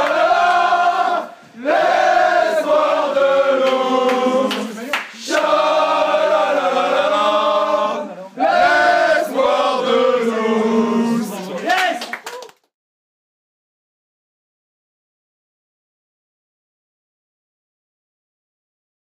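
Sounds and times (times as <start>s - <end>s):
men chanting in unison: 0.0s - 11.6s.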